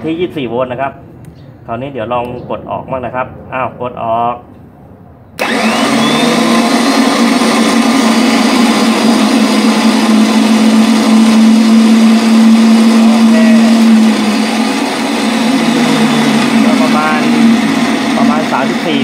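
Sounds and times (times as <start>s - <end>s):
electric winch motor whine: 5.4s - 19.0s.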